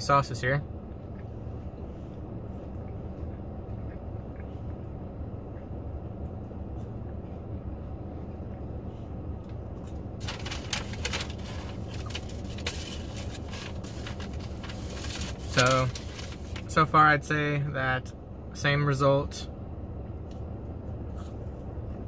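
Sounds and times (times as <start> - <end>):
car cabin rumble: 0.0 - 17.0
food packaging rustling: 10.2 - 16.7.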